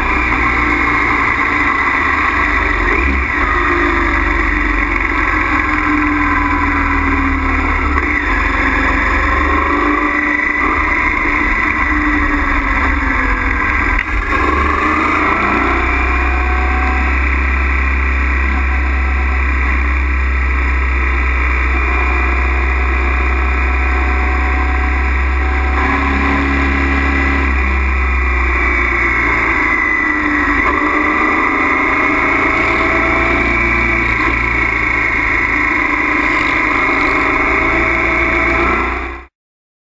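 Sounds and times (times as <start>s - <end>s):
motorcycle engine running: 0.0s - 39.3s.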